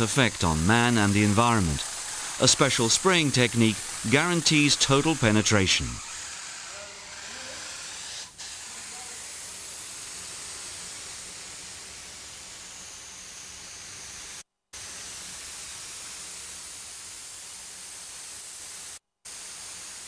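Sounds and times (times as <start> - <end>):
spray gun hissing: 0.0 - 20.0.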